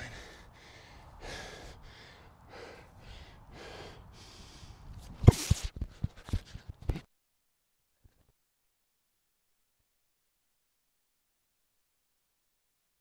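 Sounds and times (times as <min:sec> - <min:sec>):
person breathing hard: 0:00.0 - 0:05.0.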